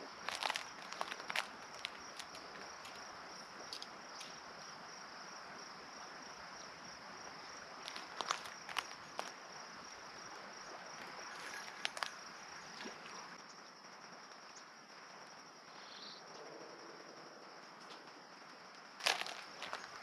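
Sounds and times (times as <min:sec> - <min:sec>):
river water washing: 0:00.0 - 0:03.3
high insect drone: 0:00.0 - 0:20.0.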